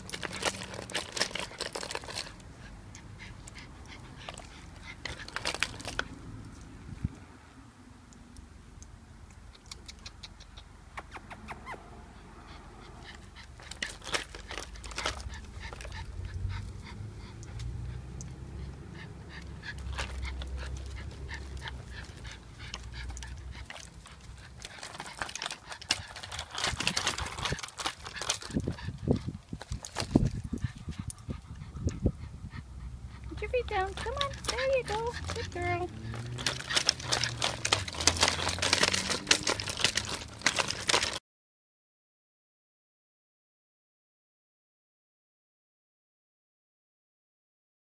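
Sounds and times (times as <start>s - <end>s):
dog cart clicking and rattling: 0.0s - 6.7s, 13.0s - 32.0s, 33.1s - 41.2s.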